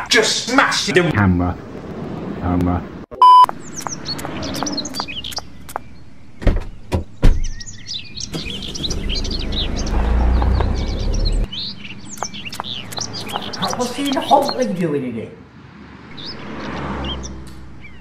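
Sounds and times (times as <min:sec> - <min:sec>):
small birds chirping: 0:03.2 - 0:18.0
low rumble: 0:08.4 - 0:11.5.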